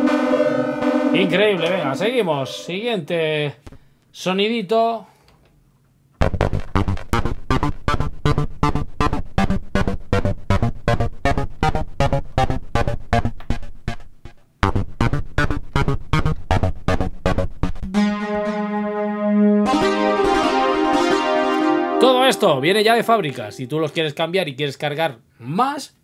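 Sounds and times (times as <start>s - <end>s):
synthesizer plucked notes: 0.0s - 2.4s, 6.2s - 23.9s
synthesizer held note: 0.0s - 2.8s, 17.8s - 23.8s.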